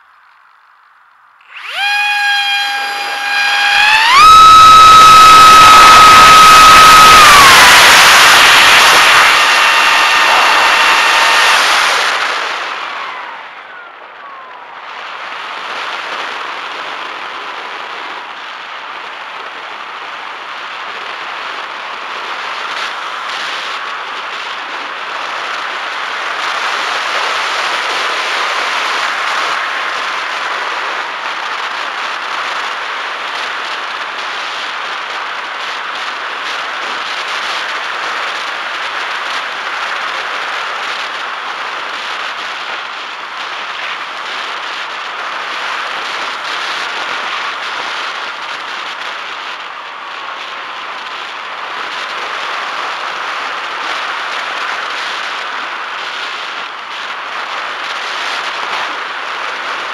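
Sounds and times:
electric motor and propeller whine: 1.4 - 59.9
wind rushing: 1.5 - 16.1.

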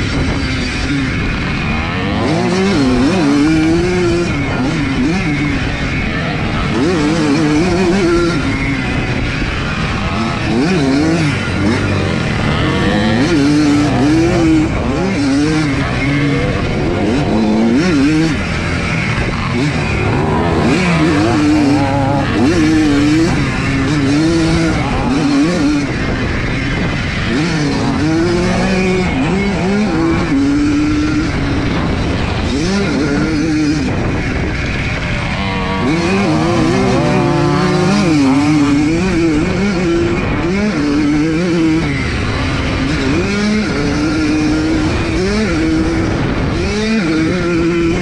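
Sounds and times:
two-stroke motorcycle engine revving: 0.0 - 48.0.

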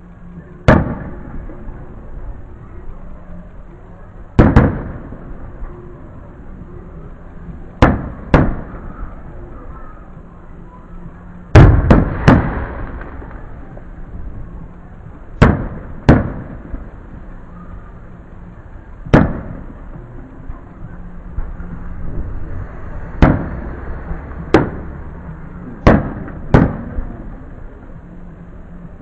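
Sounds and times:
firework shells bursting: 11.6 - 13.4.

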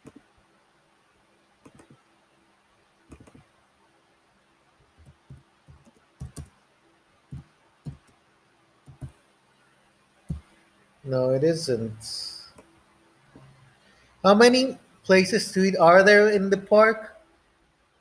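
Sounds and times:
computer mouse clicks: 0.0 - 0.2, 1.6 - 2.0, 3.1 - 3.5, 5.0 - 6.6, 8.8 - 9.2
keyboard keystrokes: 1.6 - 2.0, 3.1 - 3.4, 5.0 - 6.5, 7.3 - 8.2, 8.9 - 9.2.

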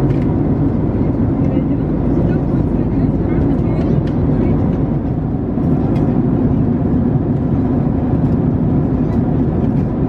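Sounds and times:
airplane cabin engine rush: 0.0 - 10.0.

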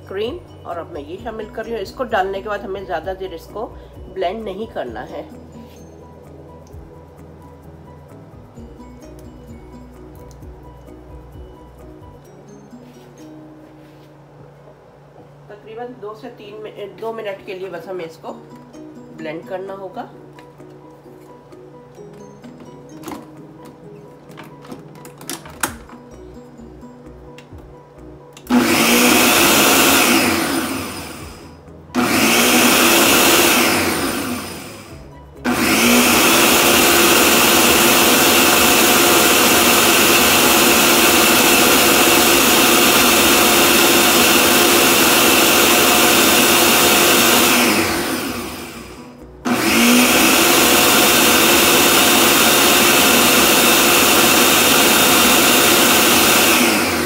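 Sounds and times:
electric blender motor whine: 28.4 - 57.0.

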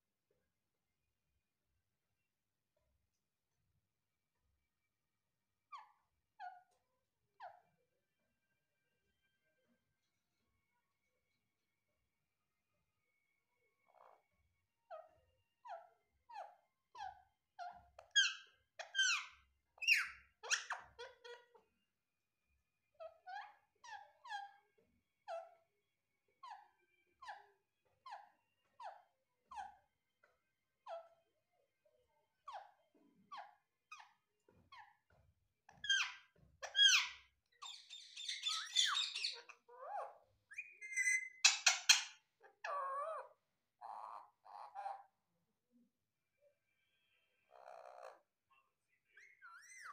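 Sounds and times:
parakeet squeaky calls: 14.9 - 21.6, 23.0 - 24.6, 26.4 - 29.8, 30.8 - 31.1, 35.7 - 45.1, 49.1 - 49.9.

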